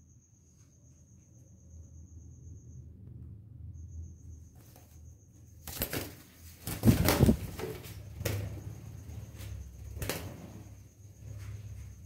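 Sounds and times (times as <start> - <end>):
bird wings flapping: 5.6 - 10.8.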